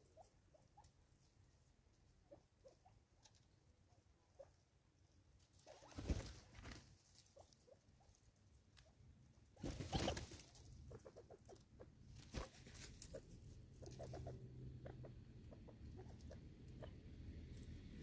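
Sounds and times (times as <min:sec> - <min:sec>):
rustling flurries of birds: 0:05.5 - 0:07.4, 0:09.6 - 0:14.4
birds scrabbling in leaves: 0:05.5 - 0:07.6, 0:09.6 - 0:14.4.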